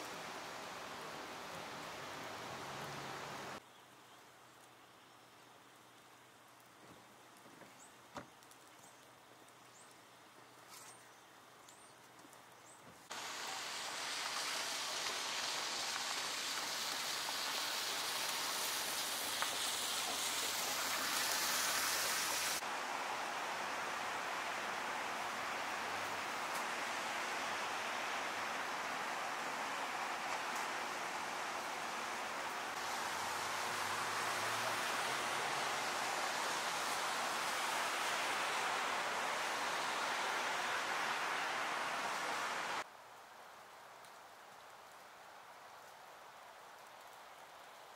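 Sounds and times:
car tyres hissing on wet road: 0.0 - 3.6, 13.1 - 42.9.

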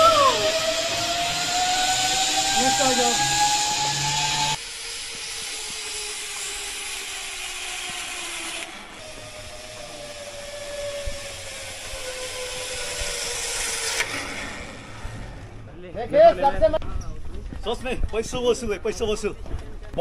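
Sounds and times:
zipline pulleys whirring on cable: 0.0 - 15.7.

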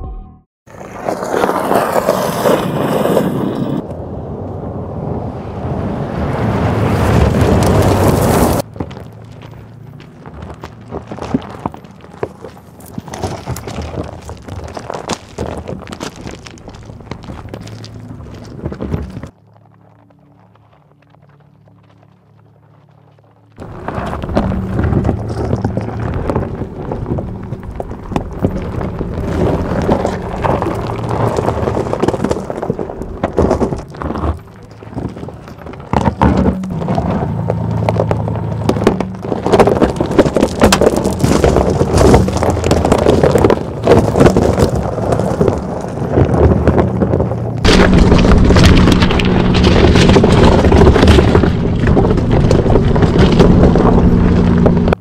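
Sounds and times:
tyres crunching over rock and gravel: 0.7 - 3.9, 6.2 - 55.0
cracks and knocks of rocks: 7.0 - 55.0.

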